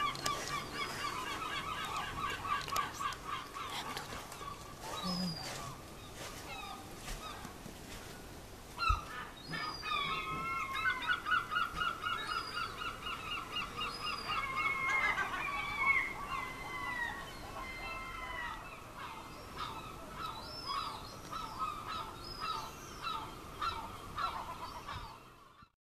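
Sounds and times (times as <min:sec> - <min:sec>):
gulls calling: 0:00.0 - 0:07.6, 0:08.8 - 0:25.7.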